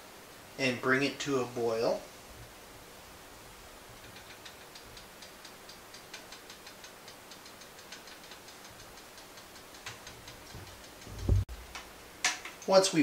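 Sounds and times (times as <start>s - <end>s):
faint ticking of pot on burner: 3.8s - 12.7s.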